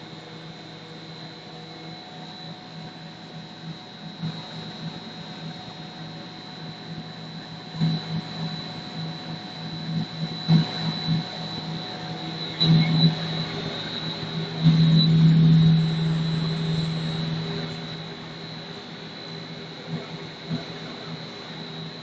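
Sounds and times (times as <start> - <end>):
high whine: 7.1 - 22.0
extruder motors humming: 7.6 - 22.0.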